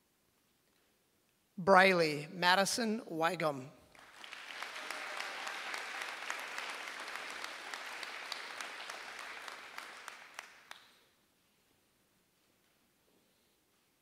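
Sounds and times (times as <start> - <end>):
audience applauding: 3.9 - 11.0.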